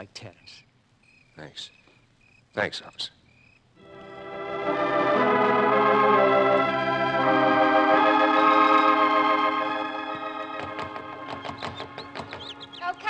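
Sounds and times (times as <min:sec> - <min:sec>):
organ chords: 0:03.8 - 0:13.0.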